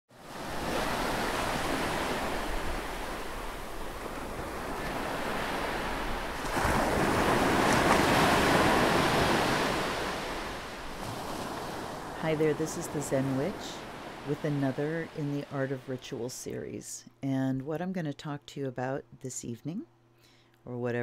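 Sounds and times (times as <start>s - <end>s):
ocean surf washing: 0.1s - 16.0s.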